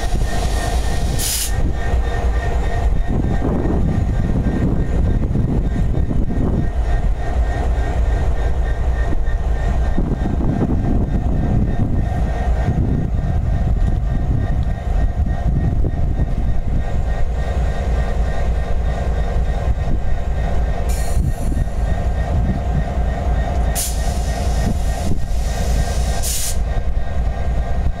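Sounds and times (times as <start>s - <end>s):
diesel locomotives idling: 0.0s - 28.0s
short air hisses: 0.1s - 1.6s, 20.9s - 21.5s, 23.8s - 26.6s.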